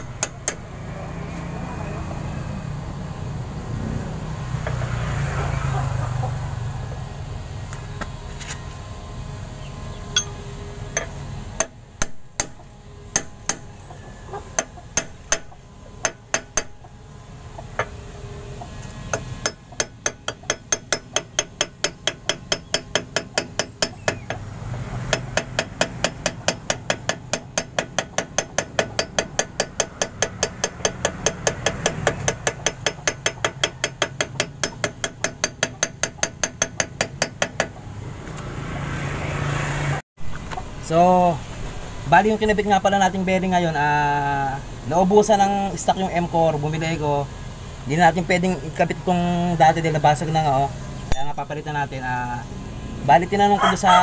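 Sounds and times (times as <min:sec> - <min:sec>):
hammer tapping on steel drift: 0:10.1 - 0:13.8, 0:14.5 - 0:17.0, 0:19.1 - 0:37.8.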